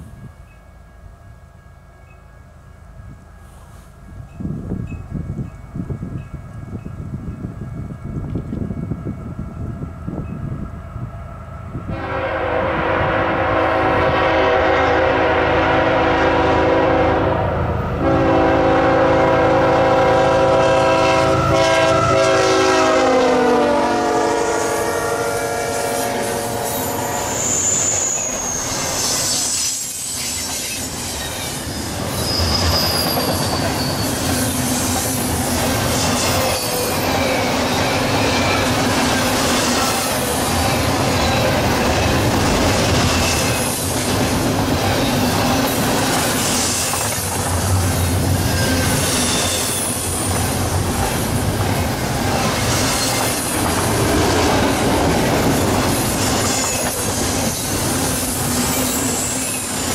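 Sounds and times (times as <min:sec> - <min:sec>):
locomotive air horn blasts: 0:11.9 - 0:28.1
wheel squeals: 0:26.4 - 0:42.2, 0:48.4 - 0:50.6, 0:56.0 - 0:59.9.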